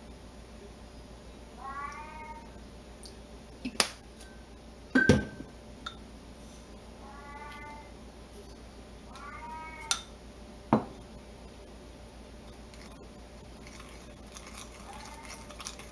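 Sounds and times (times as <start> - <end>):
cat meowing: 1.6 - 2.5, 7.0 - 7.9, 9.1 - 10.0, 14.8 - 15.5.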